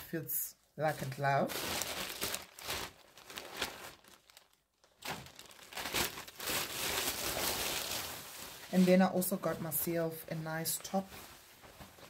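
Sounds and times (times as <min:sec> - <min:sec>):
plastic bag crinkling: 0:00.9 - 0:09.9.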